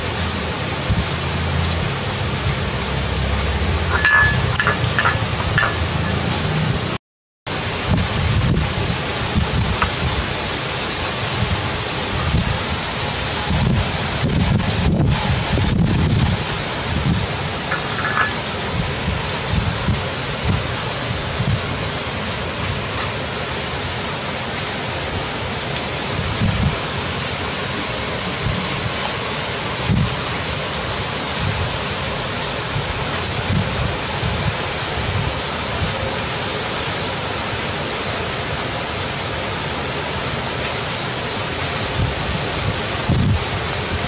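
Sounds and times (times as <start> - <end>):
heavy rain falling: 0.0 - 44.0
wind buffeting microphone: 7.8 - 10.4, 11.2 - 22.0, 26.1 - 26.9, 41.9 - 44.0.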